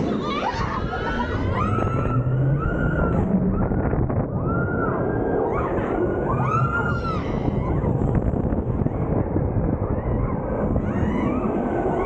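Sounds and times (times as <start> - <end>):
roller coaster track rumble: 0.0 - 12.0
wind rushing on microphone: 0.0 - 12.0
riders screaming: 0.1 - 3.3.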